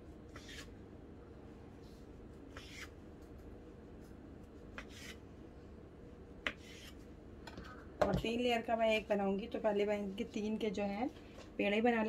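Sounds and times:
knife scraping cutting board: 0.3s - 0.7s, 2.5s - 3.0s, 4.8s - 5.2s, 6.5s - 7.0s.

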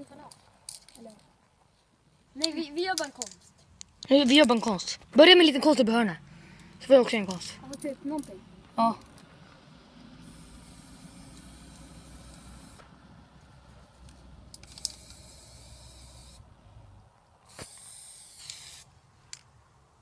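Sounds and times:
spray paint can hissing: 10.2s - 12.8s, 14.5s - 16.4s, 17.4s - 18.9s.

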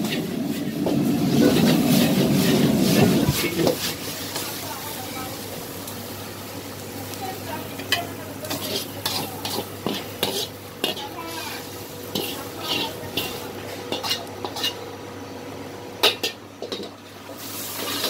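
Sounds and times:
sizzling: 0.0s - 18.0s
metal ladle scraping a wok: 8.5s - 14.8s.

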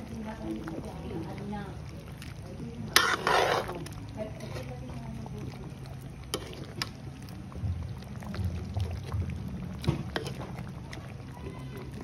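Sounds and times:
steady low rumble: 7.1s - 9.9s.

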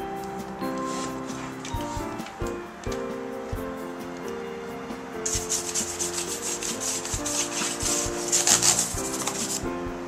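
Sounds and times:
brush scrubbing keyboard keys: 0.7s - 2.4s, 5.2s - 9.7s.

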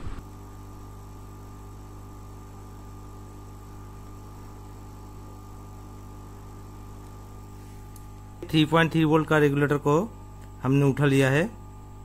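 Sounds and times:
hot air gun hum and hiss: 0.0s - 8.5s.

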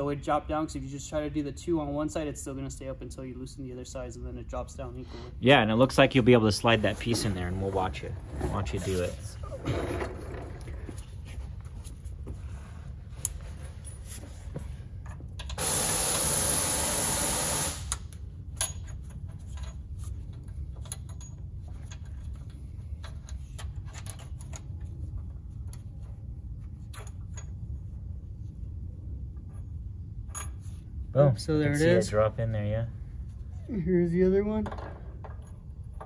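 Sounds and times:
low shop hum: 0.0s - 36.0s
loud steady hiss: 15.6s - 18.1s.

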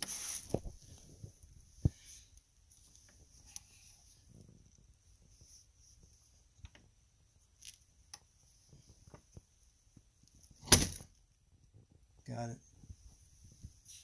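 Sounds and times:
door banging open: 10.6s - 11.1s.

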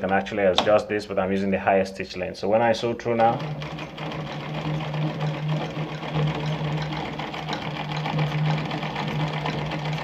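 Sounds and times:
sewing machine running: 3.1s - 10.0s.

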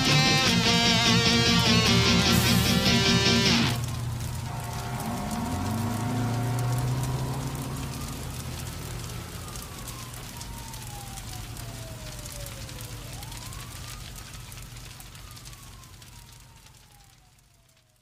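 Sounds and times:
song held note: 0.0s - 7.6s
fine crackling: 0.0s - 10.8s
siren wailing: 0.0s - 18.0s.

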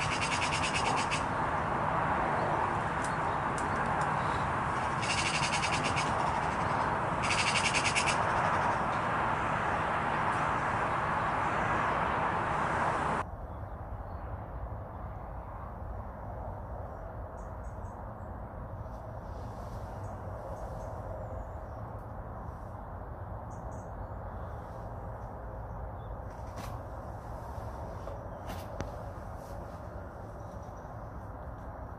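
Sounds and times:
magpie chattering rattle: 0.0s - 1.5s, 3.0s - 9.0s
steady rushing noise: 0.0s - 31.9s.

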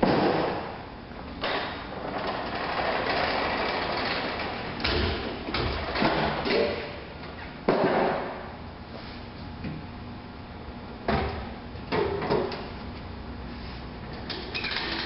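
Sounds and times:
snowblower rolling rattle: 2.0s - 4.7s.

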